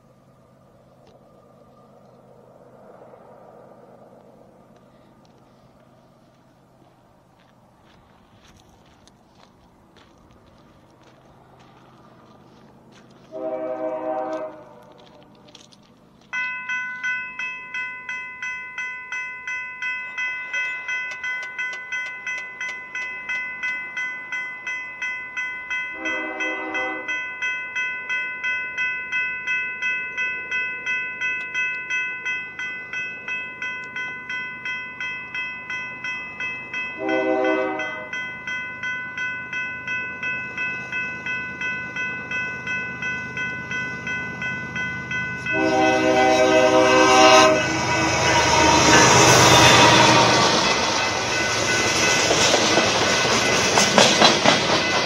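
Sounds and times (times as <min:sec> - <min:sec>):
crossing warning bell ringing: 0:04.5 - 0:55.0
locomotive air horn blasts: 0:13.3 - 0:15.5, 0:25.9 - 0:27.2, 0:37.0 - 0:38.2, 0:45.5 - 0:51.0.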